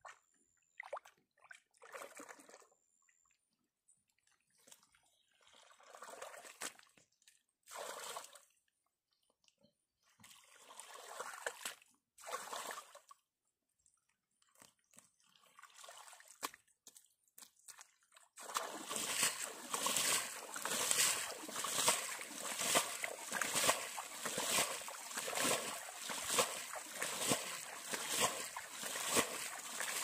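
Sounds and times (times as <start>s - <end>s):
wet mud squelching and splashing: 14.4s - 30.0s.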